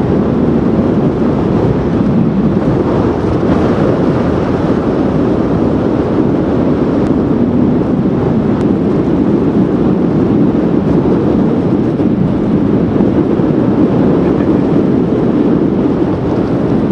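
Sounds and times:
wind buffeting microphone: 0.0s - 16.9s
heavy surf breaking: 1.4s - 8.6s.

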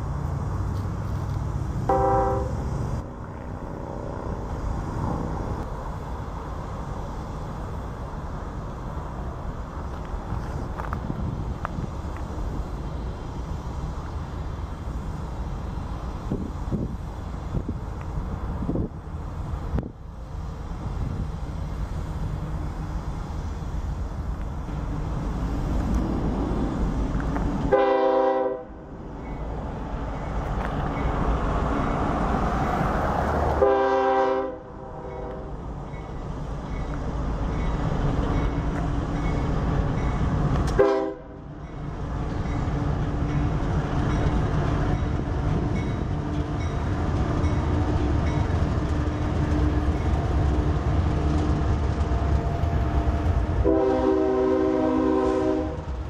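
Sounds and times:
train engines rumbling: 0.0s - 56.0s
locomotive air horn blasts: 1.9s - 2.7s, 27.7s - 28.8s, 33.6s - 35.5s, 40.8s - 41.4s, 53.6s - 55.9s.

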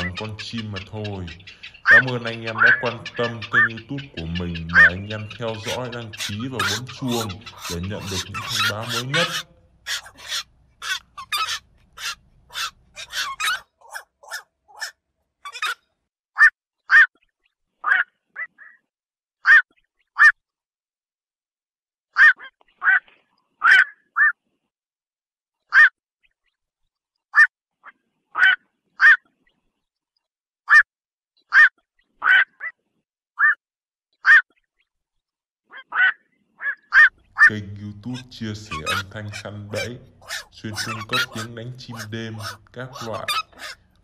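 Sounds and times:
heron calls: 0.0s - 15.8s, 16.4s - 17.1s, 19.4s - 20.3s, 22.2s - 23.0s, 23.6s - 24.3s, 25.7s - 25.9s, 28.4s - 29.2s, 31.5s - 32.7s, 34.2s - 34.5s, 35.7s - 44.0s.

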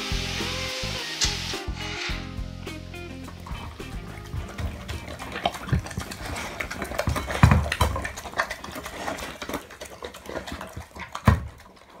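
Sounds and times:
dog eating from metal bowl: 3.3s - 12.0s.

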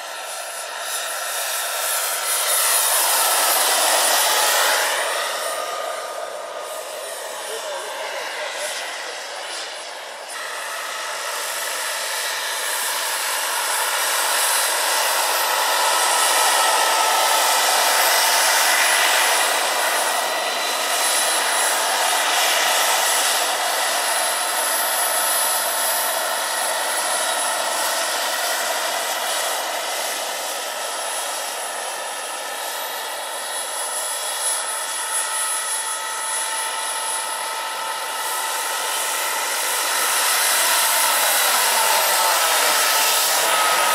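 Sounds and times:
turbine helicopter whine: 0.0s - 43.9s.

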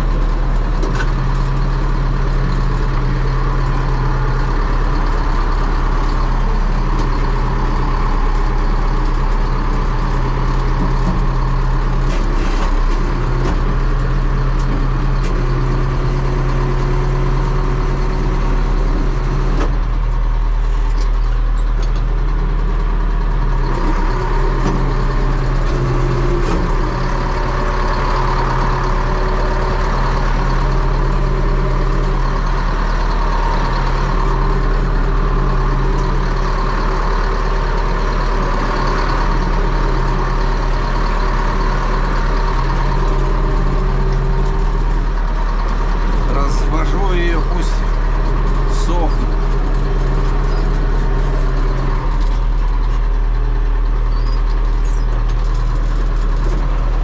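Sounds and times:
diesel engine running loudly: 0.0s - 57.0s.

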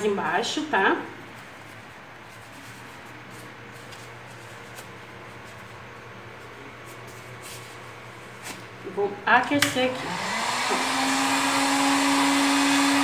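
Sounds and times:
steady low hum: 0.0s - 10.7s
foam rustling: 1.2s - 8.8s
light scrapes of foam: 1.5s - 5.5s.

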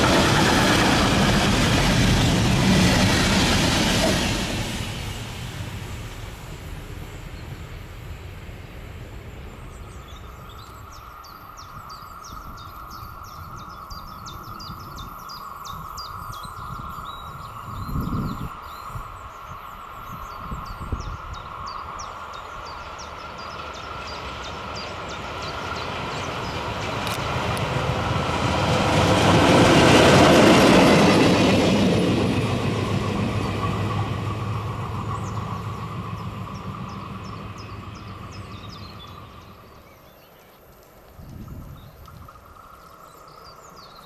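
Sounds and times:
train wheels rumbling and clattering: 0.0s - 18.6s, 20.2s - 44.0s.

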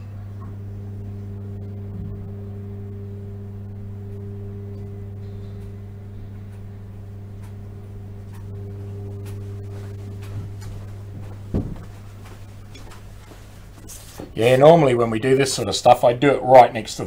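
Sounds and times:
low hum with overtones: 0.0s - 17.0s
faint clicks: 4.1s - 10.9s.

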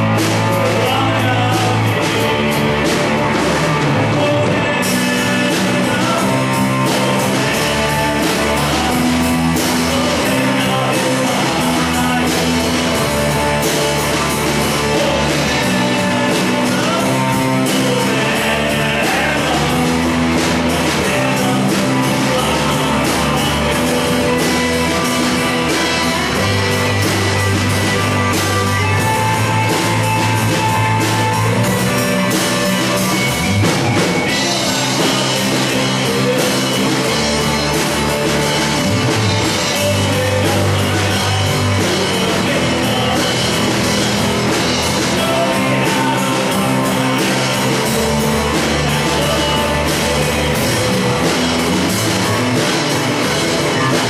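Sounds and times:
live rock band playing: 0.0s - 54.0s.

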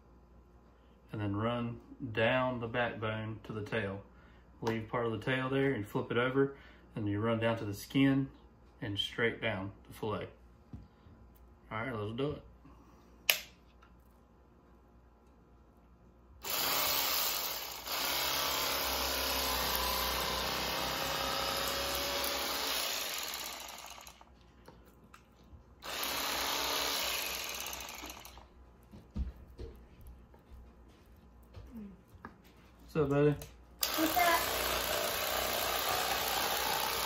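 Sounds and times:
electric fillet knife running: 16.4s - 24.2s, 25.8s - 28.4s, 33.8s - 37.0s.

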